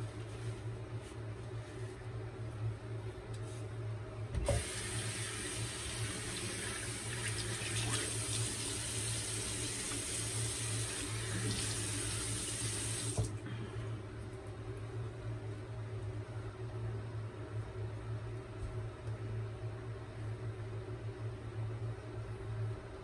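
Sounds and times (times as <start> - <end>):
faucet water running: 4.5 - 13.3.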